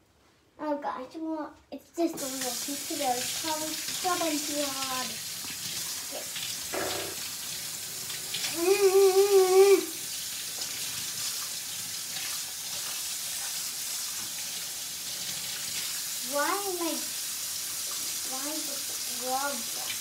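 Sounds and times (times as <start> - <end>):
wavering pitched tone: 6.8 - 7.2.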